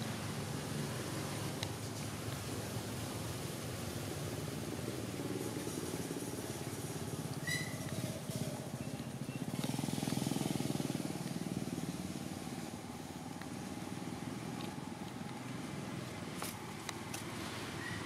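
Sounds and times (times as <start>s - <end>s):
small engine running: 4.2s - 14.7s
short high squeak: 7.4s - 8.0s, 17.8s - 18.0s.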